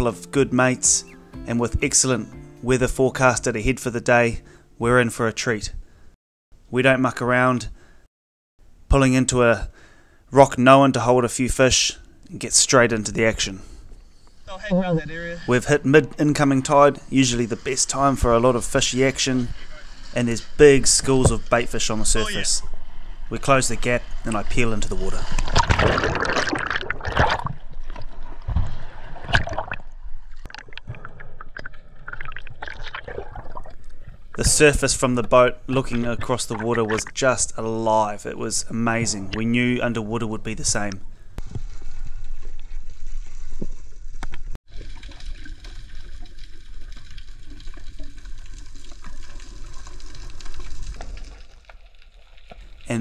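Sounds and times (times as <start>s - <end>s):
water gurgling and sloshing: 14.4s - 38.2s, 41.0s - 52.9s
water splash: 24.0s - 34.7s
rush of bubbles: 25.1s - 34.4s, 44.7s - 52.9s.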